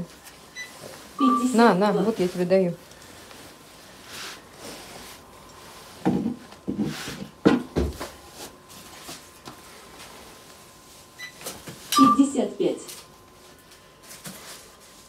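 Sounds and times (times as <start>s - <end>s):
soft rustling: 0.0s - 6.0s.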